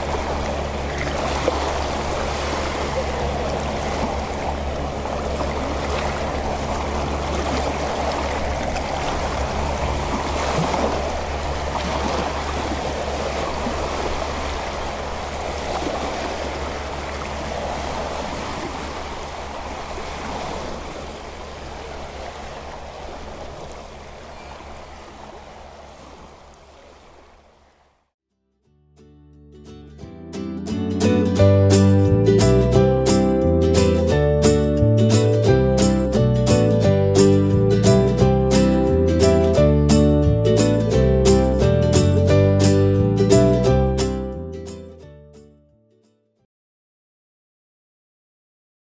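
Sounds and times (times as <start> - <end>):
low steady hum: 0.0 - 20.0
small sea waves lapping: 0.0 - 28.1.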